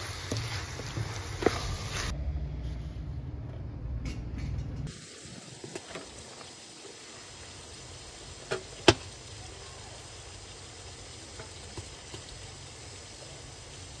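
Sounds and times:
meat sizzling in a pan: 0.0 - 2.1, 4.9 - 14.0
low steady rumble: 1.8 - 4.9.

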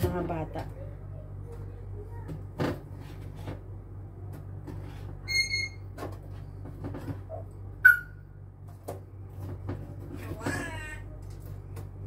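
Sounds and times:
steady low hum: 0.0 - 12.0
loud high squeak: 5.2 - 5.9, 7.8 - 8.1
short electronic beep: 7.8 - 8.2.

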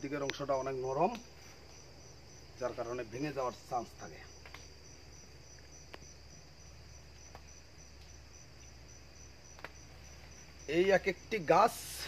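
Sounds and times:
crickets chirping: 0.0 - 12.0
faint clicks: 4.4 - 4.7.

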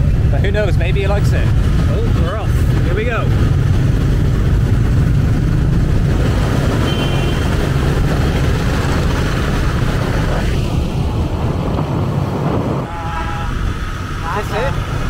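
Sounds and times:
motorbike engines rumbling: 0.0 - 15.0
road noise: 0.0 - 15.0
horn beep: 6.8 - 7.5.

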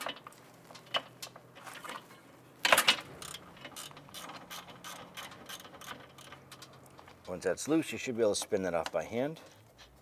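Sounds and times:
ratchet clicking: 3.2 - 6.8.

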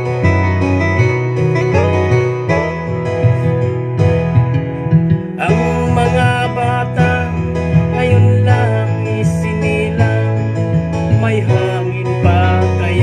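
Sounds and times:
acoustic guitar: 0.0 - 13.0
man singing: 5.2 - 13.0.

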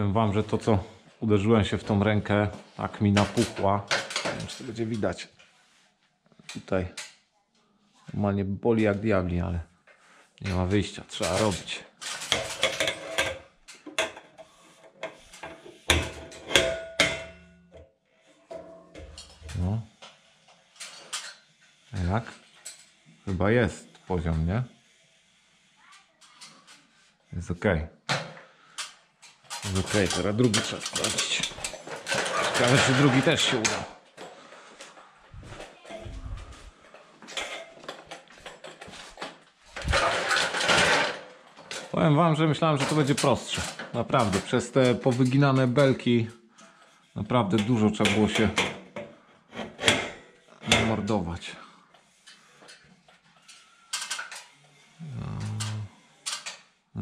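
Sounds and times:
tools clicking and knocking: 28.1 - 34.4, 52.2 - 56.7.

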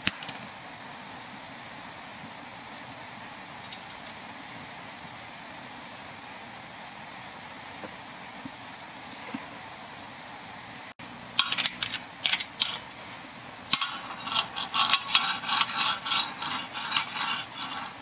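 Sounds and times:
metal file scraping metal: 13.7 - 18.0.

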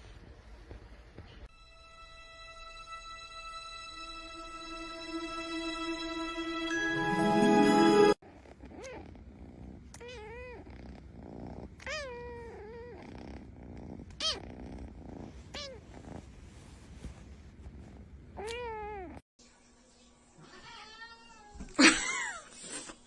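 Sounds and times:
kitten purring: 8.2 - 19.2.

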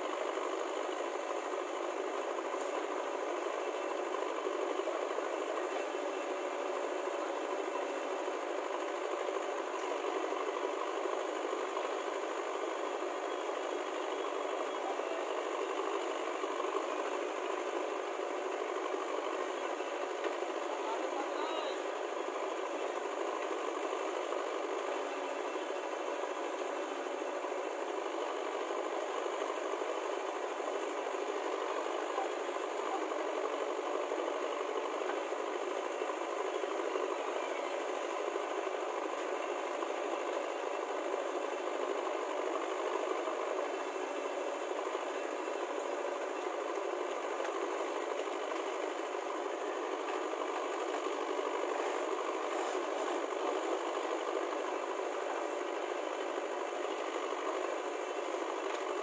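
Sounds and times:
diesel engines running: 0.0 - 59.0.

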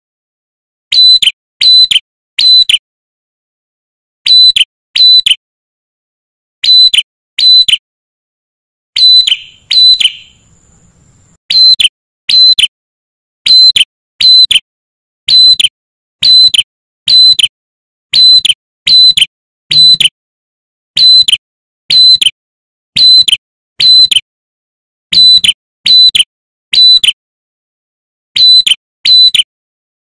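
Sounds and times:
bird singing piercing note: 9.0 - 11.8.

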